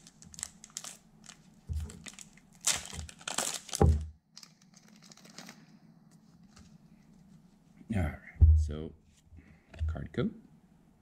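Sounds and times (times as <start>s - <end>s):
foil wrapper crinkling and tearing: 0.0s - 5.7s.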